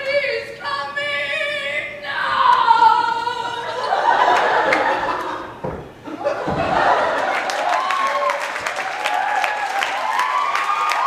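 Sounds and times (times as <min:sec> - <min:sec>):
person singing opera-style: 0:00.0 - 0:03.9.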